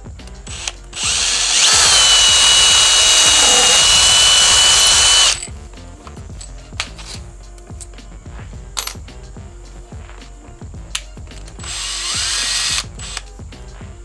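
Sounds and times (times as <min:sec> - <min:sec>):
cordless drill whine: 0:00.4 - 0:05.5, 0:11.6 - 0:13.3.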